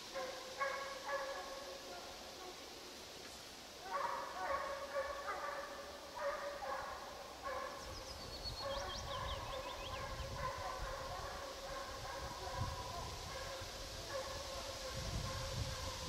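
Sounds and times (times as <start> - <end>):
hounds baying: 0.1 - 2.6, 3.8 - 8.0, 8.6 - 16.0
songbird chirping: 4.0 - 10.8.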